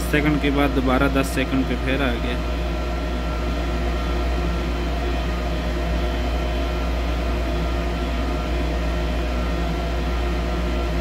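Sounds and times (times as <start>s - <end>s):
low mechanical hum with tones: 0.0s - 11.0s.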